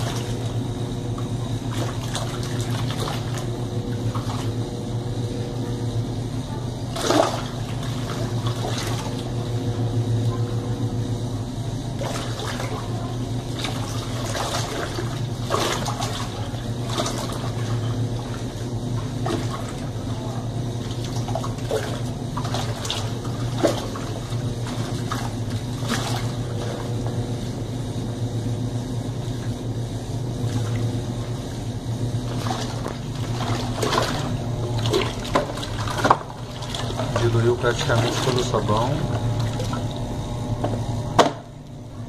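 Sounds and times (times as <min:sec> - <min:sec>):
water churning and splashing: 0:00.0 - 0:00.7, 0:01.3 - 0:04.6, 0:06.8 - 0:09.4, 0:11.9 - 0:27.0, 0:30.4 - 0:31.2, 0:32.2 - 0:40.6
washer motor hum: 0:00.0 - 0:42.0.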